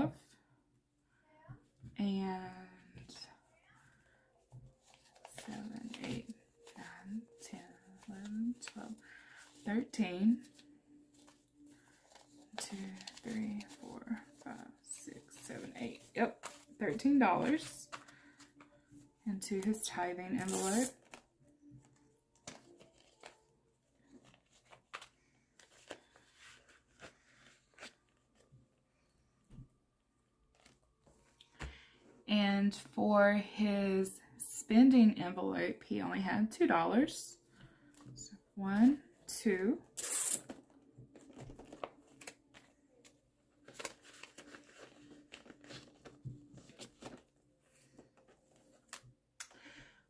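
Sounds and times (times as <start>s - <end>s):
paper bills rustling: 4.8s - 9.8s, 10.4s - 18.7s, 21.9s - 28.4s, 40.0s - 49.1s
plastic pouch clicks and rustles: 40.0s - 47.3s.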